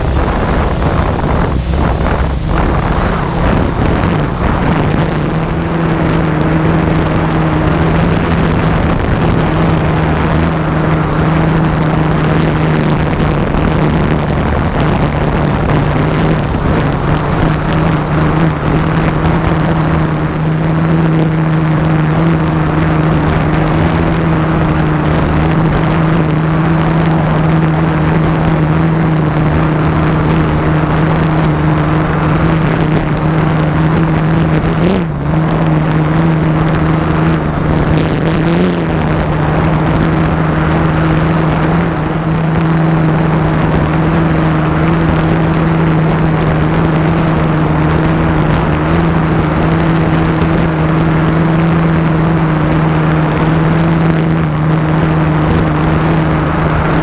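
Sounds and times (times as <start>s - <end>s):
drone motors humming: 0.0s - 57.0s.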